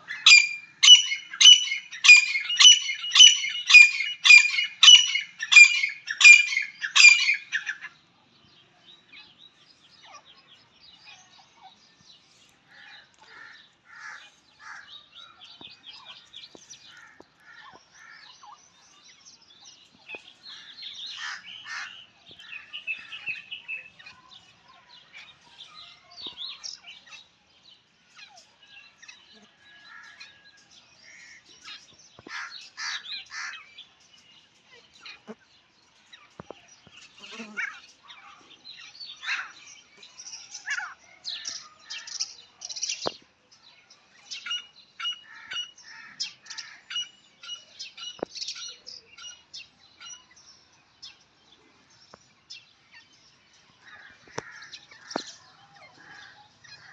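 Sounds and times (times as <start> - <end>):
francolin calling: 0.0 - 7.8
bird chirps: 0.0 - 56.9.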